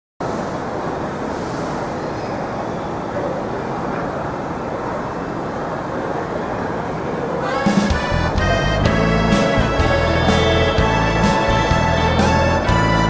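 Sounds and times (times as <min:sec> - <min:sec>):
busy public space din: 0:00.2 - 0:13.0
music: 0:07.4 - 0:13.0.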